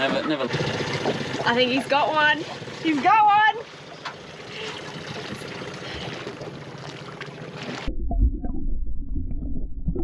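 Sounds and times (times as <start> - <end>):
muffled underwater rumble: 7.6 - 10.0.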